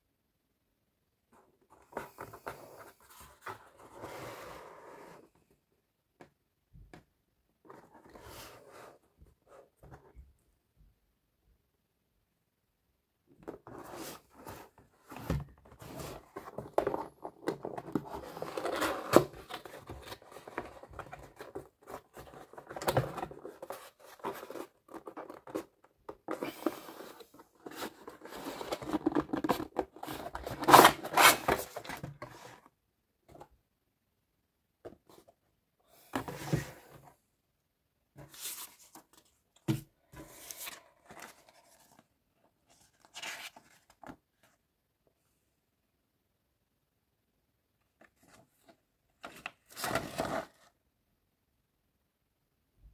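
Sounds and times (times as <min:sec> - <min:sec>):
cardboard and plastic packaging rustling: 0:13.5 - 0:32.6.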